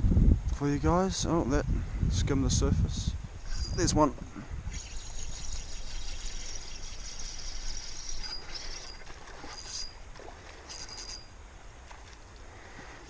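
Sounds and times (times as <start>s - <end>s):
fishing reel buzzing: 4.7s - 10.0s, 10.6s - 11.3s
river flowing: 4.8s - 13.0s.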